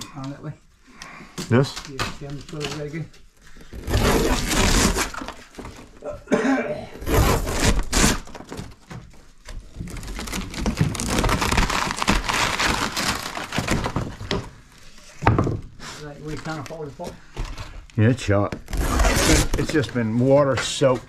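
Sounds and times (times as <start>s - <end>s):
wall paneling tearing and cracking: 1.4s - 5.8s, 7.0s - 14.5s, 18.6s - 19.9s.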